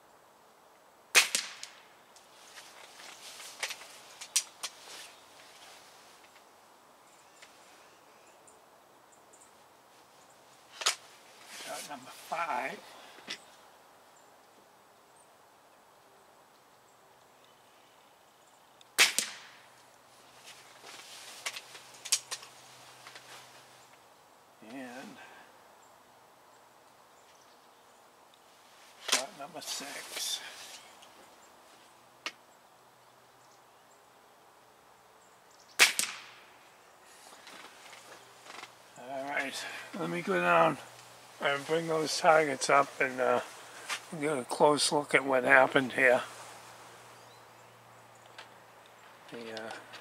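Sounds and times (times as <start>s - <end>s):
air rifle shot: 1.1s - 1.8s, 19.0s - 19.6s, 35.8s - 36.4s.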